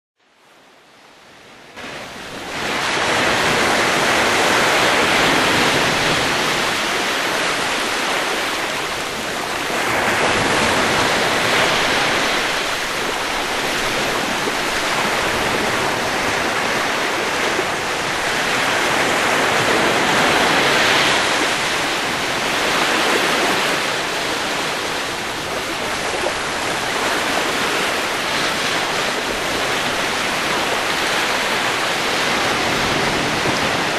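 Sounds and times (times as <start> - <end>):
sea waves breaking: 0.4 - 33.9.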